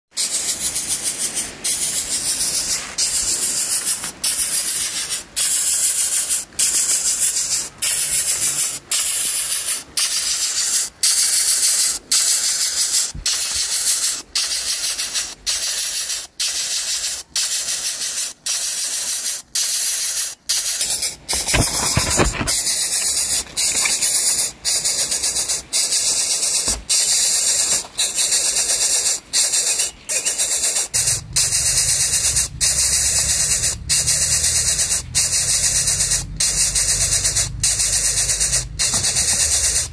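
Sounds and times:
pulsing insect buzzing: 0:20.6 - 0:39.9.

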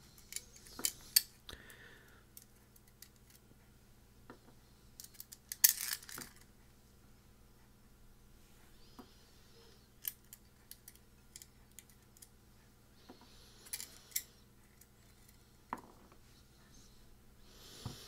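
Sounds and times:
small metal screws clinking: 0:05.0 - 0:06.4, 0:13.6 - 0:14.3.

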